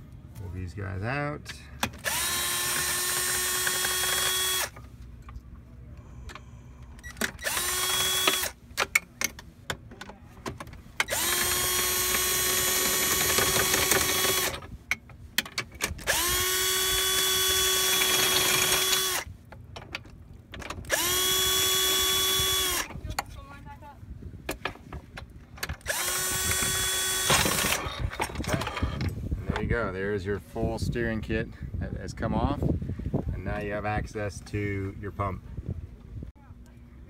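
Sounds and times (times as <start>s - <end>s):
power drill whining: 2.0s - 4.8s, 7.0s - 8.6s, 11.0s - 14.6s, 16.0s - 19.3s, 20.9s - 22.9s, 25.8s - 29.0s.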